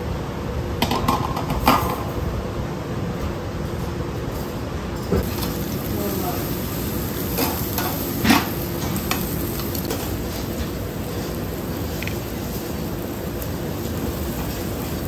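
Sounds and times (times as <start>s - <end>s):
meat sizzling on a grill: 5.2s - 15.0s.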